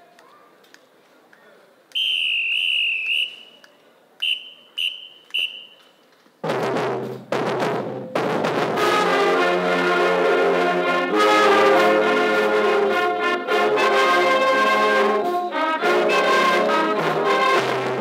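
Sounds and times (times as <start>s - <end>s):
marching band playing brass chords: 6.4s - 18.0s.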